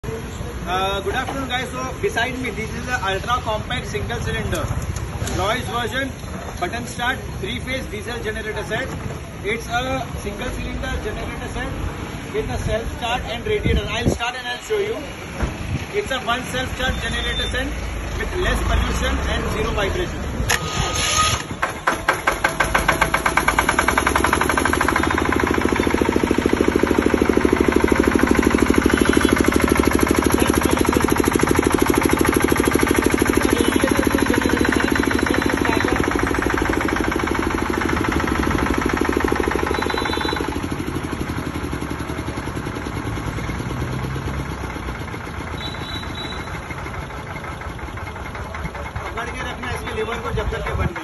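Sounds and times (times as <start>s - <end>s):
diesel generator running: 15.2s - 51.0s
electric starter cranking: 20.4s - 41.5s.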